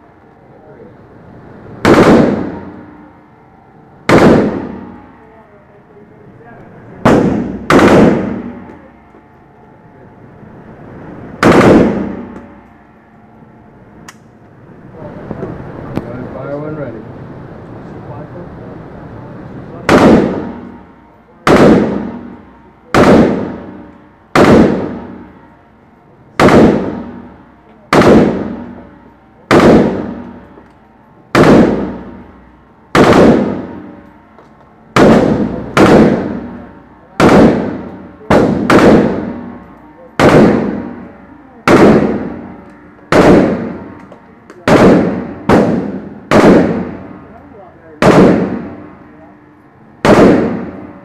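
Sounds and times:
rifle shots echoing indoors: 0:01.8 - 0:03.0, 0:04.0 - 0:05.0, 0:07.0 - 0:08.8, 0:11.4 - 0:12.6, 0:19.8 - 0:20.8, 0:21.4 - 0:25.5, 0:26.4 - 0:27.3, 0:27.9 - 0:28.8, 0:29.5 - 0:32.3, 0:32.9 - 0:34.0, 0:34.9 - 0:36.6, 0:37.2 - 0:47.2, 0:48.0 - 0:48.9, 0:50.0 - 0:50.9.

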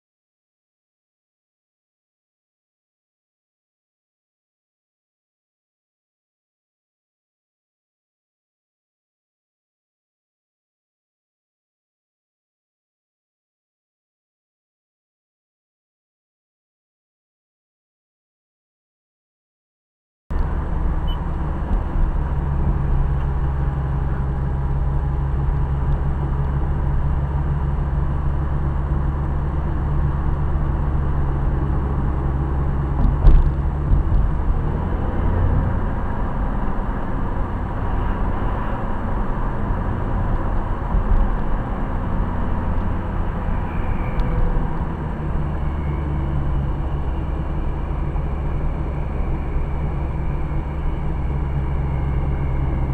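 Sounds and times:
car engine hum: 0:20.3 - 0:52.9.

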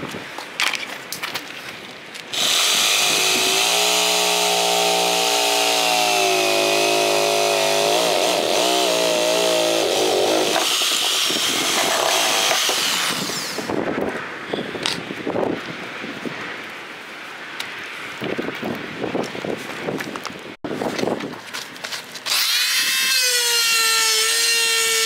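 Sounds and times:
reciprocating saw cutting: 0:02.3 - 0:13.8, 0:22.3 - 0:25.0.

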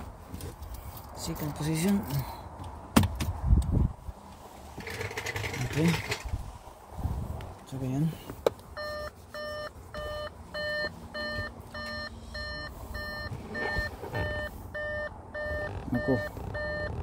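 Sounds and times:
electronic warning beeps: 0:08.8 - 0:17.0.

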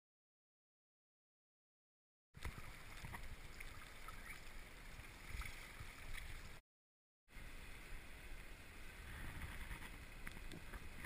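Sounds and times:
flowing river water: 0:02.4 - 0:06.6, 0:07.3 - 0:11.0.

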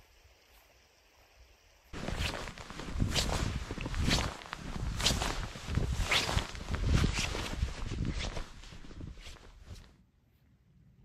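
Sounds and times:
boots crunching through snow: 0:02.0 - 0:09.9.

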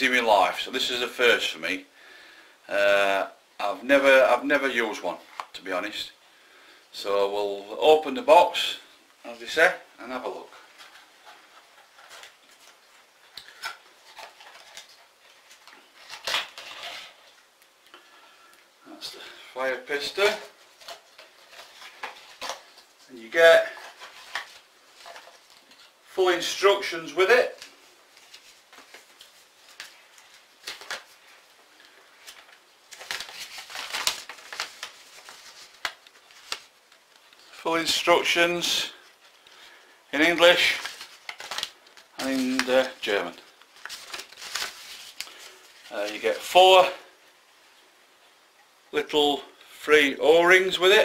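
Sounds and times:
paper leaflet rustling: 0:10.2 - 0:17.5, 0:19.0 - 0:47.0.

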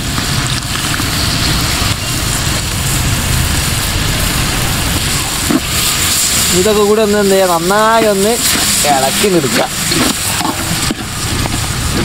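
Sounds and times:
masala sizzling in pot: 0:00.0 - 0:12.0
steady low rumble: 0:00.0 - 0:12.0
metal spatula stirring: 0:05.4 - 0:12.0.

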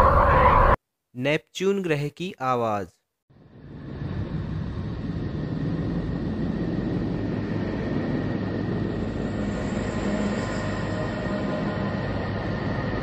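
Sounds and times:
rumbling drone: 0:03.3 - 0:13.0.

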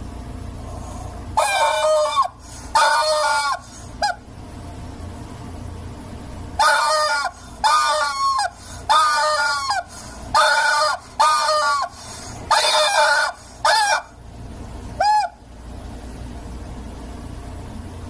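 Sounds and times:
rubber chicken toy squawking: 0:01.4 - 0:04.2, 0:06.6 - 0:14.2, 0:15.0 - 0:15.4.

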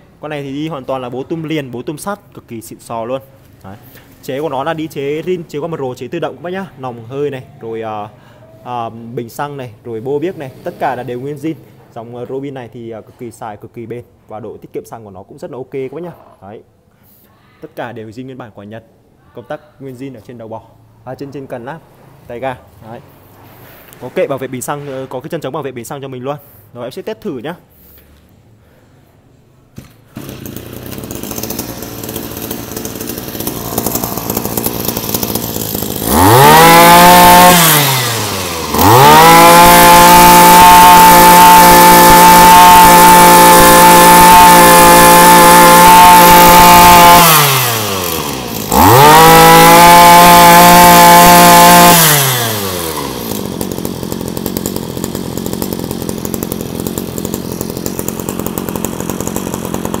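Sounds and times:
brush cutter engine revving: 0:10.2 - 0:11.4, 0:29.8 - 1:00.0.

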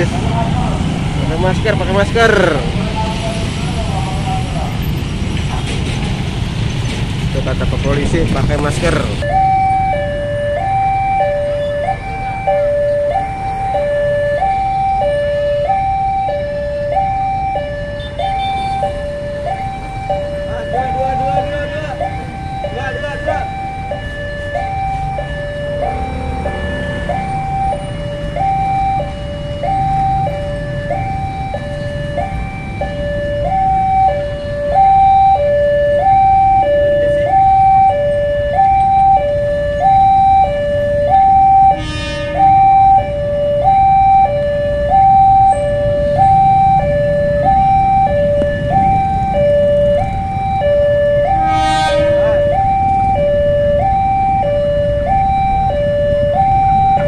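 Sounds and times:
vehicle engines idling: 0:00.0 - 0:57.0
level crossing two-tone alarm: 0:09.2 - 0:57.0
short horn blasts: 0:41.7 - 0:42.6, 0:51.3 - 0:52.5.

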